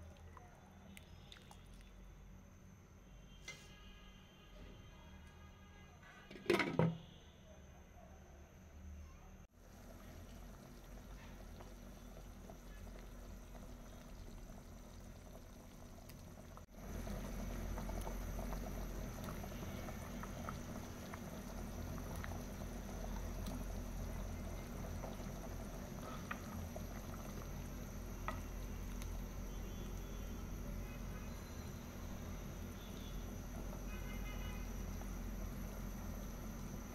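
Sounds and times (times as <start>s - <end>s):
curry bubbling in a pot: 9.5s - 36.9s.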